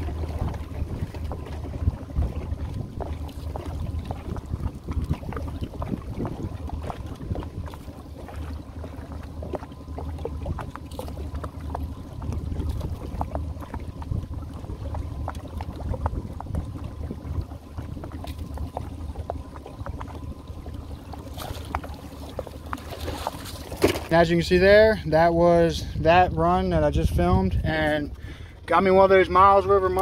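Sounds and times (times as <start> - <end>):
boat motor idling: 0.0 - 30.0
water splashing: 0.0 - 30.0.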